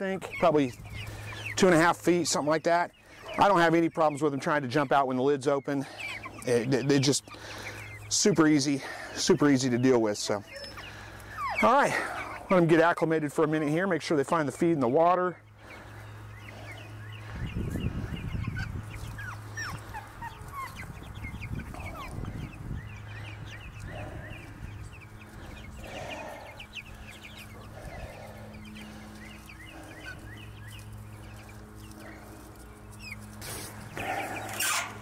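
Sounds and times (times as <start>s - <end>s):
chicks peeping and chirping: 0.0s - 35.0s
steady low hum: 15.4s - 35.0s.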